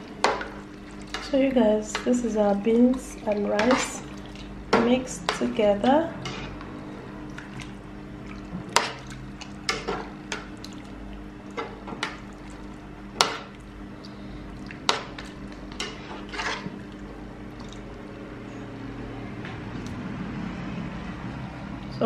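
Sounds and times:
steady low hum: 0.0 - 22.0
wet squelching: 2.0 - 18.2
spoon scraping metal pot: 6.2 - 6.6, 15.8 - 16.7.

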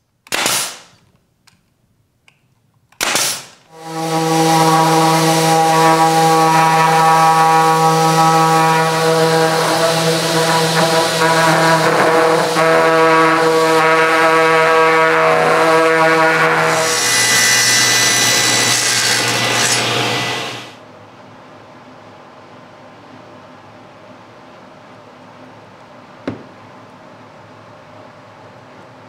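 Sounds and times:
brad nailer firing: 0.2 - 1.0, 3.0 - 3.7, 16.7 - 20.7
orbital sander humming: 3.7 - 13.9, 15.4 - 20.8.

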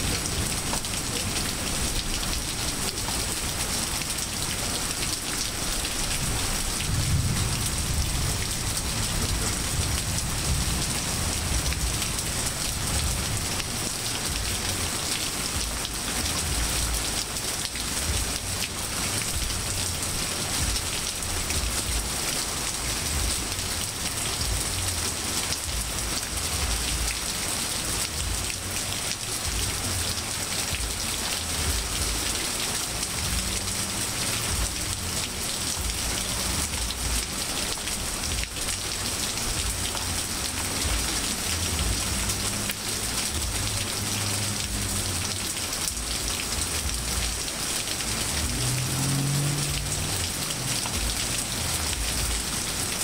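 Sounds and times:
rain falling on grass and pavement: 0.0 - 53.0.

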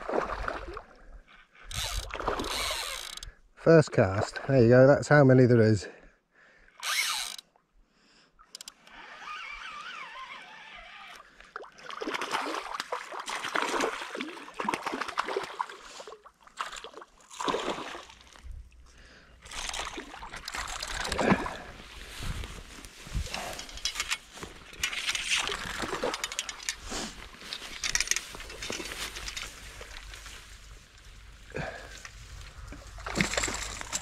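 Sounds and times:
fish thrashing and splashing water: 0.0 - 1.0, 11.5 - 18.5, 19.4 - 22.2, 24.9 - 26.6, 31.6 - 34.0.

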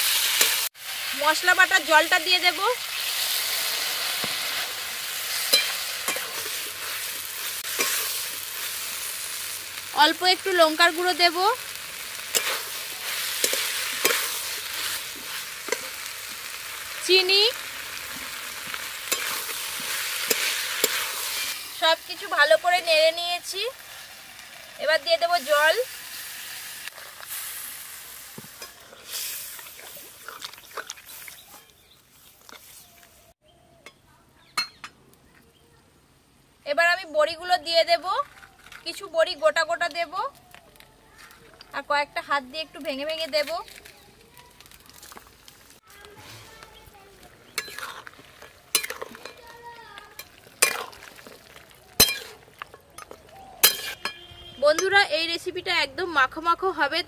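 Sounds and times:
oil sizzling in a wok: 0.0 - 33.4, 41.7 - 57.0
metal spatula scraping pan: 5.2 - 8.7, 12.2 - 16.0, 19.1 - 21.8, 47.5 - 49.5, 52.0 - 54.9.

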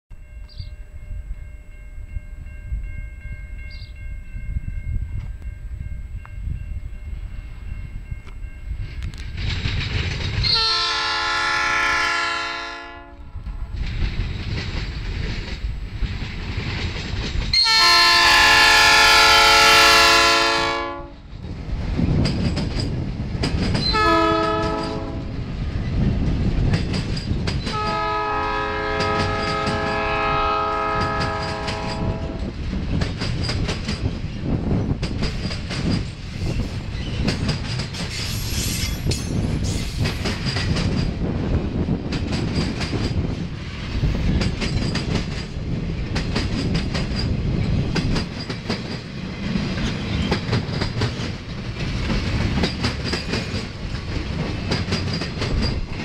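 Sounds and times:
diesel locomotive engine rumbling: 0.1 - 56.0
locomotive air horn blasts: 10.5 - 13.3, 17.6 - 21.2, 23.9 - 25.3, 27.7 - 32.4
wheels clattering over rail joints: 42.1 - 56.0.

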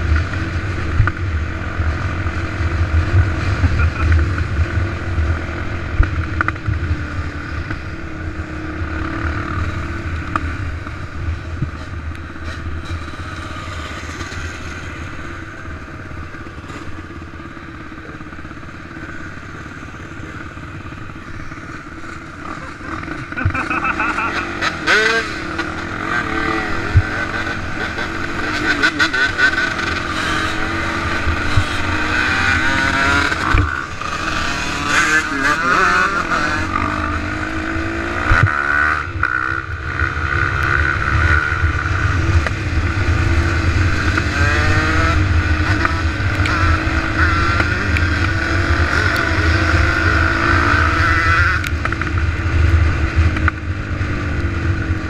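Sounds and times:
dirt bike engine revving: 11.7 - 55.0.

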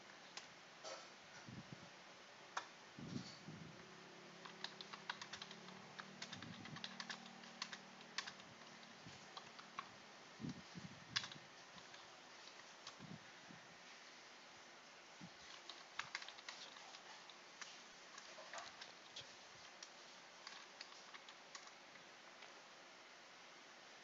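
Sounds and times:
faint low hum: 0.0 - 24.0
keyboard key clicks: 4.4 - 8.8, 11.2 - 13.0.

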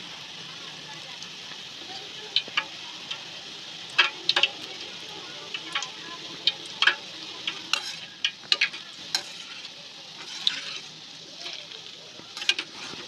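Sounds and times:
batter deep-frying in oil: 0.0 - 13.0
wire skimmer clicking on pan: 3.9 - 4.6, 5.5 - 10.9, 12.4 - 13.0.

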